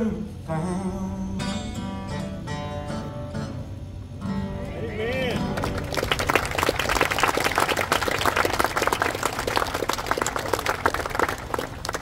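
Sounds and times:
crowd applauding: 5.1s - 12.0s.

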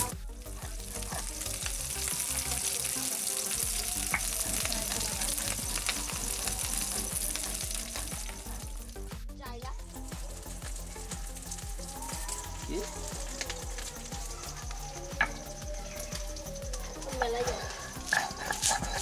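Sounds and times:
prawns sizzling in hot oil: 0.0s - 19.0s
metal spatula scraping a wok: 17.6s - 19.0s.

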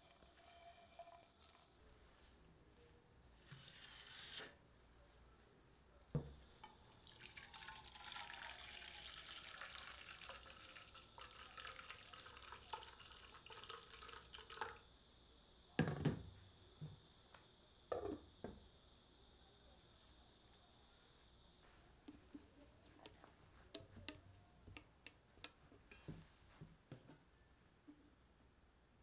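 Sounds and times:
water pouring into steel bowl: 7.0s - 14.8s.

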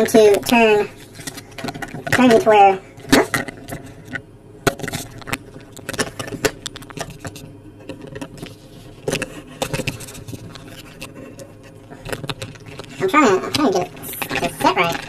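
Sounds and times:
paper rustling: 4.8s - 15.0s.

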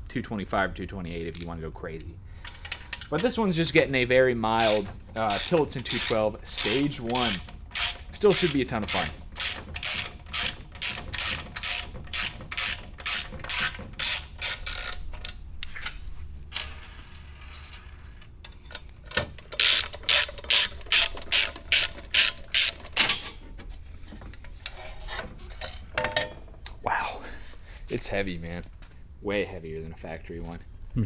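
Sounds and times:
ratchet wrench clicking: 4.6s - 15.4s, 19.4s - 23.0s.

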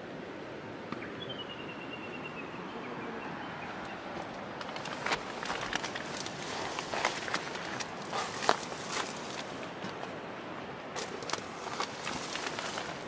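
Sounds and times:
rustling inside nylon tent: 4.6s - 10.2s, 11.0s - 13.0s.

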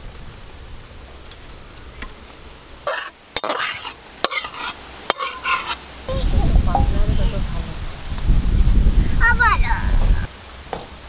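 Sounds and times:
metal utensil scraping pan: 2.9s - 5.9s.

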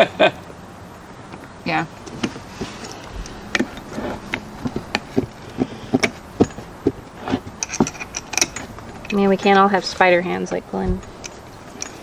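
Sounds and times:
small metal parts clicking: 7.5s - 9.3s, 11.0s - 12.0s.

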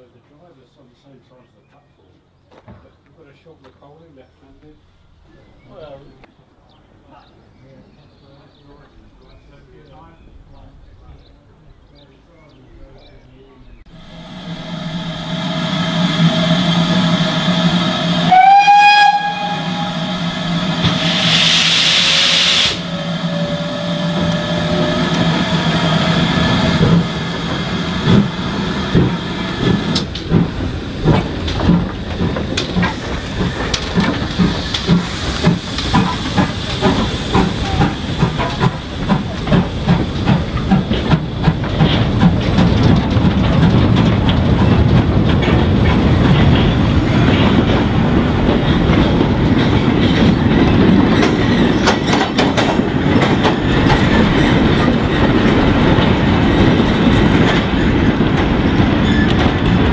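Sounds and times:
steam locomotive whistle: 14.1s - 24.8s
steam hissing: 19.3s - 42.4s
train wheels clattering over rail joints: 24.1s - 59.9s.

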